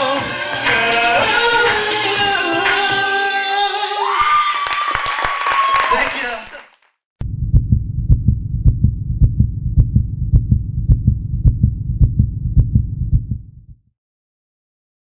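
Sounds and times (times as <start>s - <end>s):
low thudding pulse with clicks: 7.2s - 13.9s.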